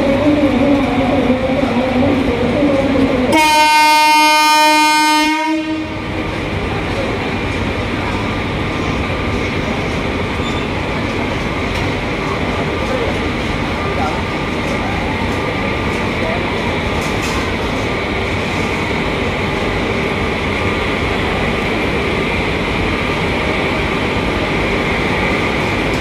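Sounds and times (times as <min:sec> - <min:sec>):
train rumble and hum: 0:00.0 - 0:26.0
locomotive horn blast: 0:03.3 - 0:06.0.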